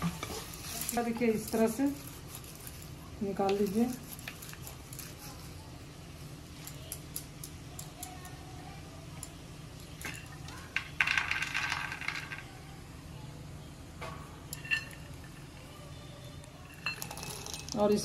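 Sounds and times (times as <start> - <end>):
peanuts clinking into steel cup: 0.6 - 5.2, 10.0 - 12.5, 14.5 - 15.6, 16.5 - 18.0.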